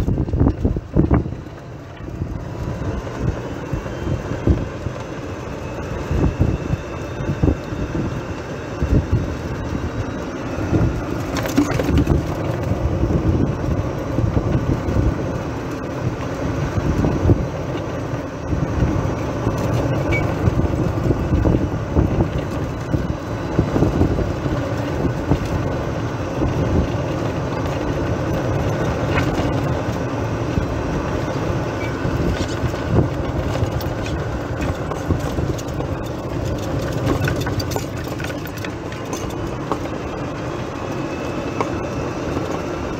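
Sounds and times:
golf cart motor running: 0.0 - 42.9
tyre and road noise: 0.0 - 42.9
light clicks and rattles: 31.8 - 40.0.

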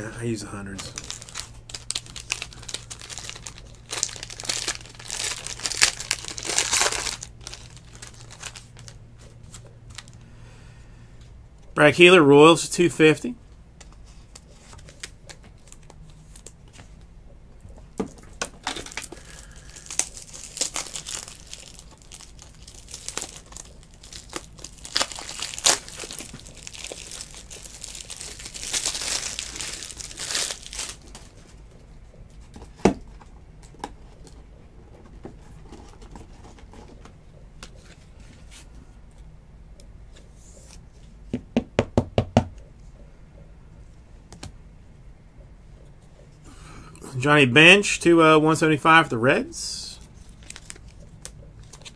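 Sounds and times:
packaging crinkling and tearing: 0.7 - 10.2, 14.4 - 16.6, 18.4 - 31.6, 50.0 - 51.9.

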